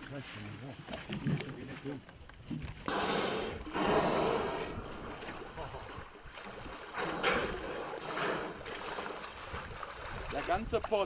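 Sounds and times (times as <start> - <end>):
lapping water: 2.8 - 11.0
killer whales blowing: 2.9 - 5.0, 6.9 - 9.2.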